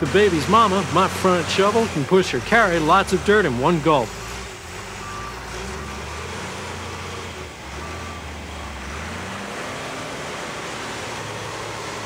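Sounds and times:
backhoe diesel engine under load: 0:00.0 - 0:12.0
short beeps: 0:05.0 - 0:06.2.

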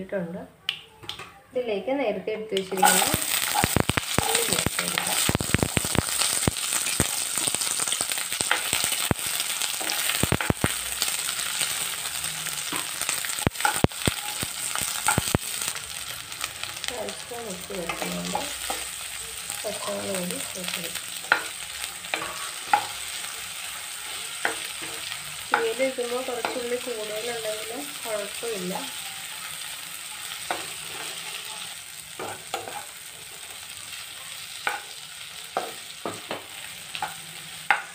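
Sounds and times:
shallots sizzling in hot oil: 0:02.6 - 0:37.9
spatula scraping a pan: 0:21.2 - 0:26.7, 0:29.0 - 0:33.6.

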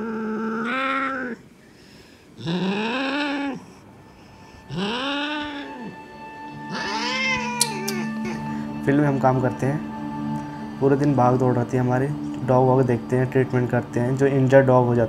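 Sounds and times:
cat yowling: 0:00.0 - 0:01.4, 0:02.4 - 0:03.7, 0:04.7 - 0:08.5.

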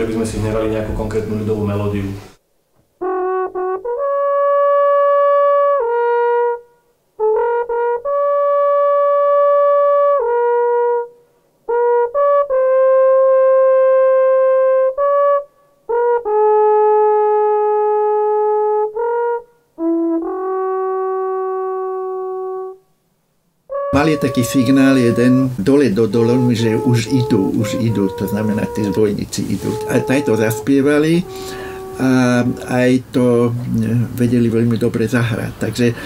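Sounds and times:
long wooden horn notes: 0:23.7 - 0:33.8.

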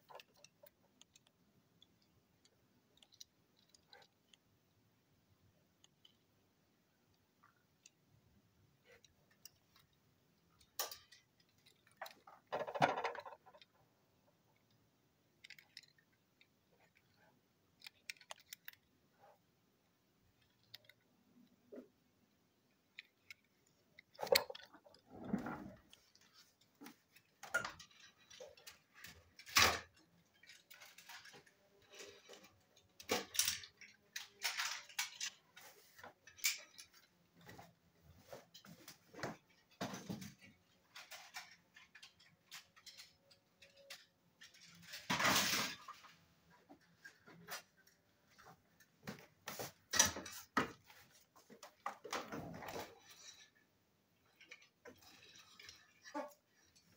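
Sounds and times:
toy cars handled clicking: 0:00.0 - 0:04.6, 0:05.7 - 0:06.4, 0:08.8 - 0:13.7, 0:14.4 - 0:19.0, 0:20.2 - 0:21.7, 0:22.3 - 0:25.0, 0:25.8 - 0:37.1, 0:40.4 - 0:45.7.

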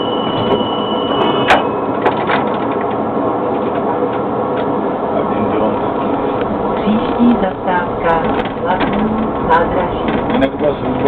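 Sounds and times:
high steady tone: 0:00.0 - 0:02.1
tram running noise: 0:00.0 - 0:11.0.

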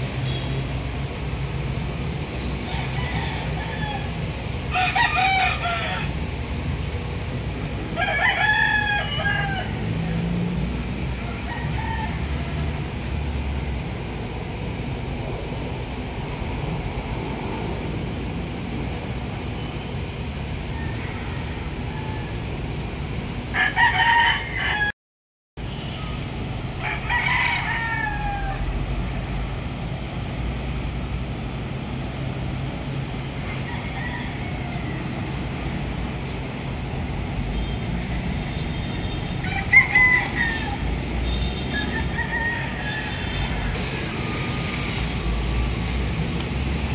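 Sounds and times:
steady low rumble: 0:09.6 - 0:20.8.

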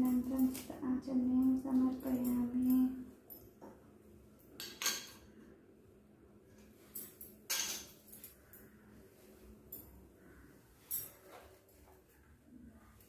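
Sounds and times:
metal utensils clinking: 0:04.6 - 0:05.3, 0:06.9 - 0:08.3.

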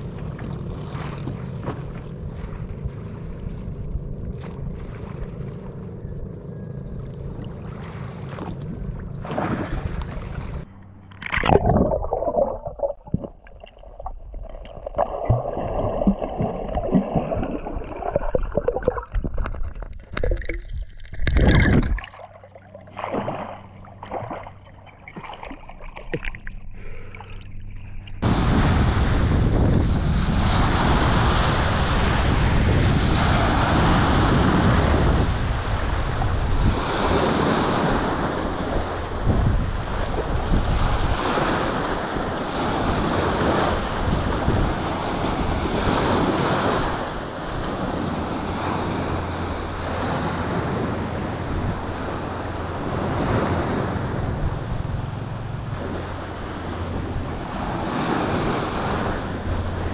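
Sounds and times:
sea water sloshing and splashing: 0:00.0 - 0:06.0, 0:07.2 - 0:28.6
rush of surf: 0:28.2 - 0:59.9
wind on microphone: 0:28.2 - 0:59.9.

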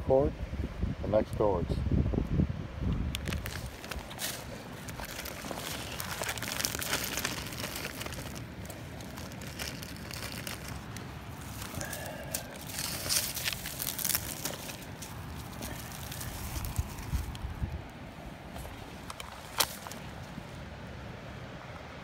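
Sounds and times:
dry leaves and bark rustling: 0:03.1 - 0:20.7
plastic packaging crinkling: 0:03.2 - 0:17.4.

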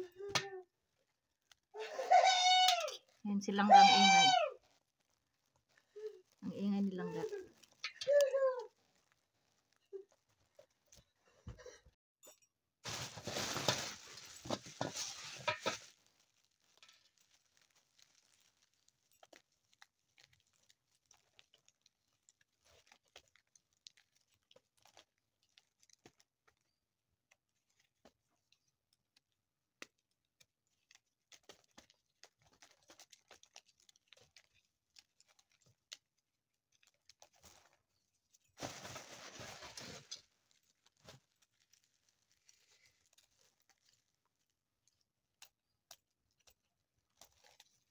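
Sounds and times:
popcorn kernels pattering into basin: 0:12.8 - 0:24.0.

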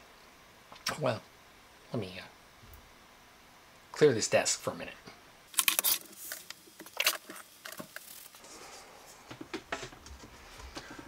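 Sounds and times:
handling sounds: 0:05.5 - 0:11.0.

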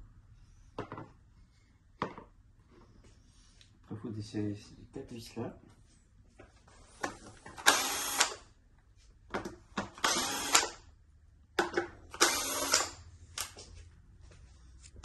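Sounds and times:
cordless drill running: 0:07.6 - 0:08.5, 0:10.0 - 0:10.8, 0:12.1 - 0:13.0.

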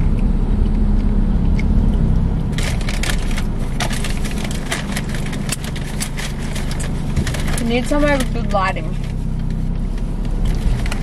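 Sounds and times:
car cabin rumble: 0:00.0 - 0:11.0
paper bag rustling: 0:02.6 - 0:11.0.

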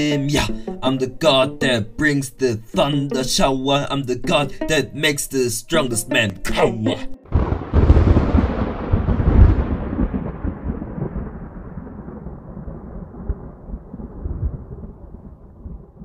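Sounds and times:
thunder crack and rumble: 0:07.3 - 0:16.0.

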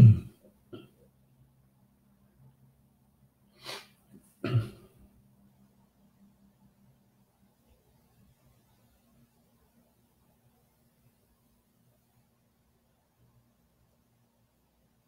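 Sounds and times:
throaty vocal burst: 0:00.0 - 0:00.3
faint room hum: 0:00.0 - 0:15.0.

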